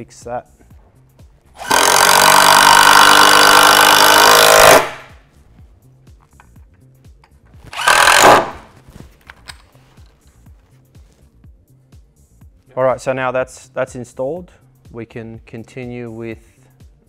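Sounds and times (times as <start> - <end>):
drill driving screws into wood: 1.6 - 5.1, 7.7 - 8.7.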